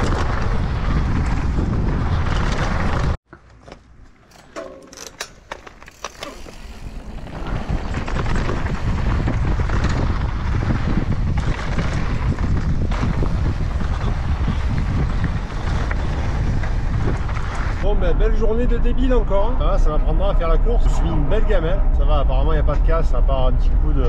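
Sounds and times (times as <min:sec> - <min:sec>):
wind buffeting microphone: 0:00.0 - 0:03.2, 0:06.3 - 0:24.0
short clicks and rattles: 0:04.2 - 0:06.9.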